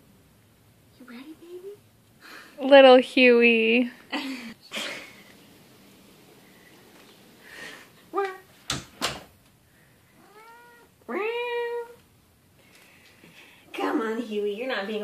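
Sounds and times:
cat meowing: 10.2s - 12.0s.

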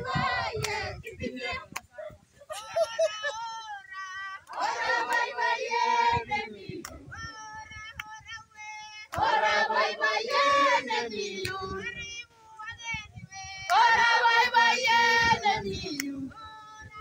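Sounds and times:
group singing or chanting: 0.0s - 2.2s, 3.8s - 7.2s, 8.0s - 12.2s, 13.5s - 17.0s.

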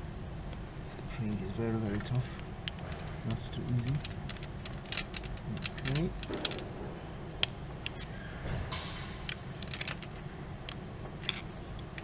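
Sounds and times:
metal tools clicking and tapping: 1.3s - 6.6s.

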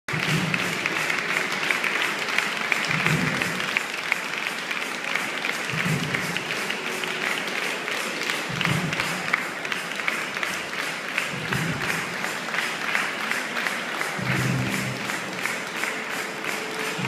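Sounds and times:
music with deep beat: 0.1s - 1.8s, 2.7s - 3.8s, 5.5s - 12.4s, 14.0s - 17.0s
audience applauding: 0.1s - 17.0s.

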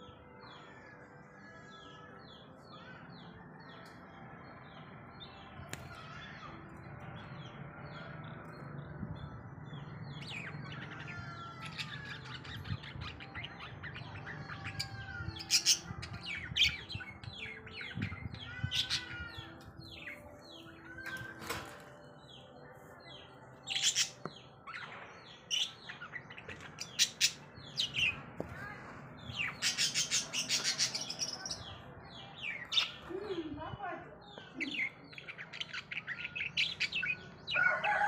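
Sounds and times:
budgerigars chirping: 29.4s - 31.6s.

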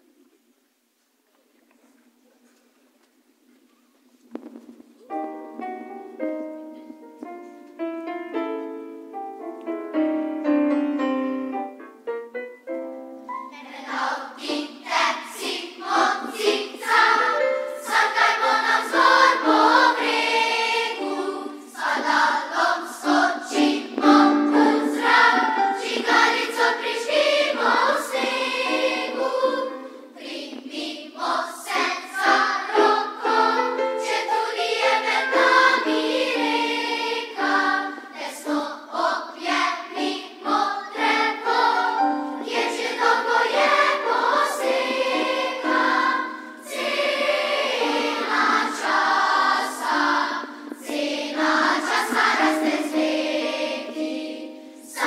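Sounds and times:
children's choir singing: 13.3s - 55.0s.

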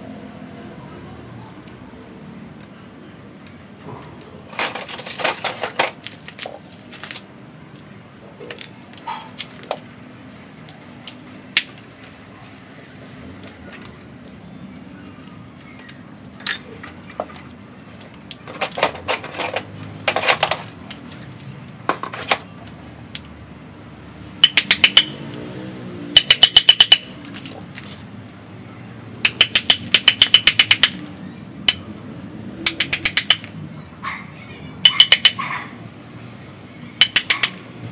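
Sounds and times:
rapid metallic ticking: 24.4s - 25.2s, 26.2s - 27.2s, 29.2s - 31.0s, 32.6s - 33.6s, 34.8s - 35.4s, 37.0s - 37.9s
hand tool knocks and clicks: 24.4s - 25.4s, 26.2s - 27.1s, 29.2s - 31.0s, 32.6s - 33.5s, 34.8s - 35.4s, 37.0s - 37.7s.

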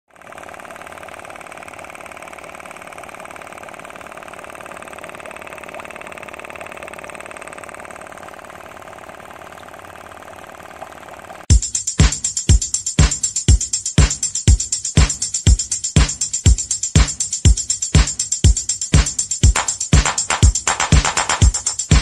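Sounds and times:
small air pump rattling: 0.1s - 11.5s.

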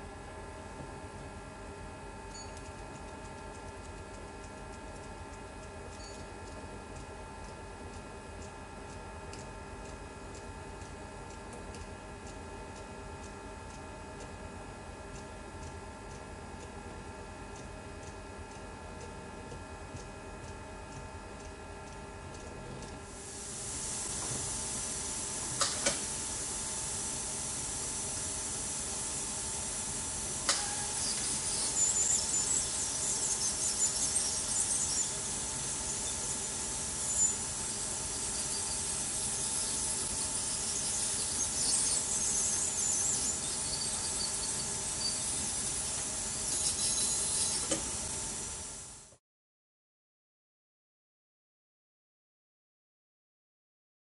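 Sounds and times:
ultrasonic dental tip squealing hiss: 23.2s - 48.9s.

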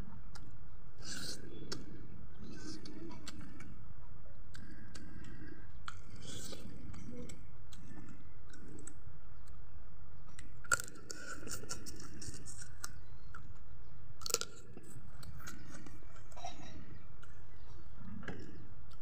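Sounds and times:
chewing and crunching chicken: 10.3s - 17.4s.

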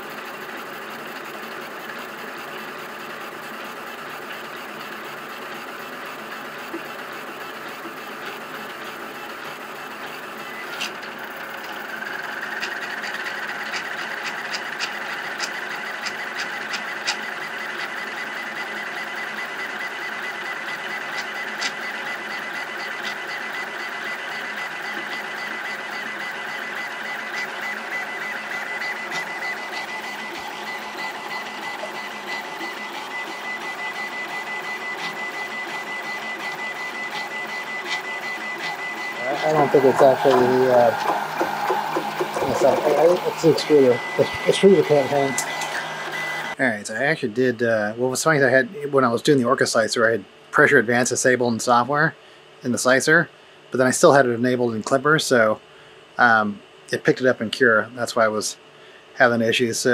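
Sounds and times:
printer mechanical whir: 0.0s - 55.5s
high whine: 38.8s - 46.6s.

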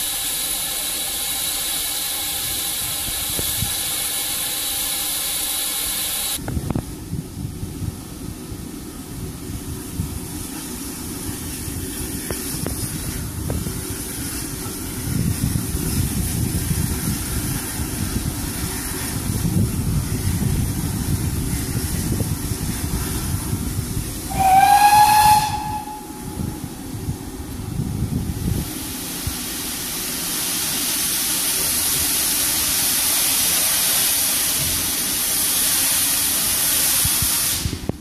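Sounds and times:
steam hissing: 0.0s - 6.5s, 9.3s - 38.0s
steam whistle blast: 24.3s - 26.6s
low rumble: 25.4s - 28.7s.

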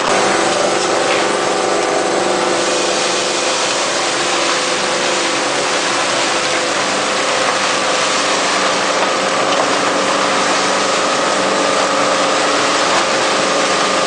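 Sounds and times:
machine humming with hiss: 0.0s - 14.0s.

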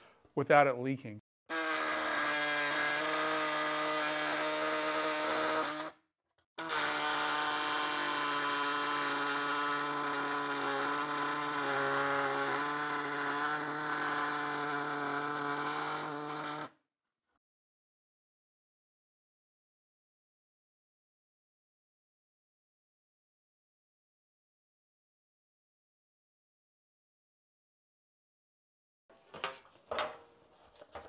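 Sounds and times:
pneumatic tool cutting metal: 1.5s - 6.0s, 6.6s - 16.7s.

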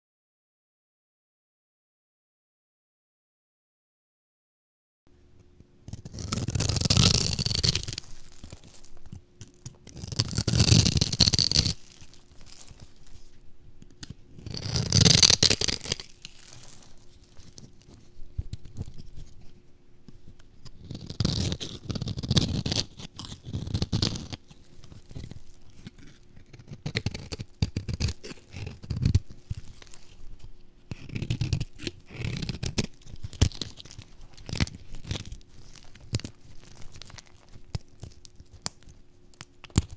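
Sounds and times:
soft crackling: 5.4s - 39.9s
soap cubes crunching: 14.5s - 17.7s
knife cutting dry soap: 20.6s - 38.7s.

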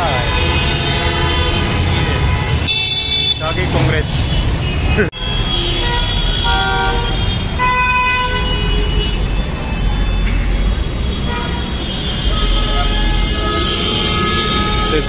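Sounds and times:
vehicle horns honking: 0.0s - 15.0s.

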